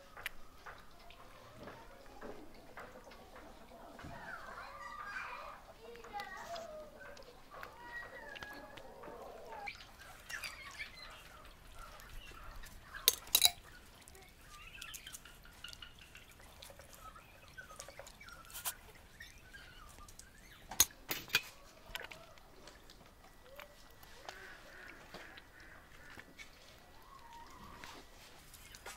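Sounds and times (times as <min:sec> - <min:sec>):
birds chirping: 0:00.0 - 0:28.9
chicken squelching onto skewers: 0:03.3 - 0:28.9
metal skewers clinking: 0:13.0 - 0:13.7.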